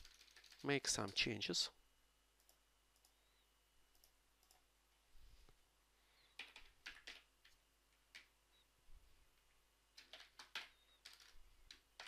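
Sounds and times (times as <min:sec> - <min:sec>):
computer mouse clicks: 0:02.4 - 0:03.2, 0:03.9 - 0:04.7
keyboard keystrokes: 0:06.4 - 0:08.3, 0:10.0 - 0:12.0.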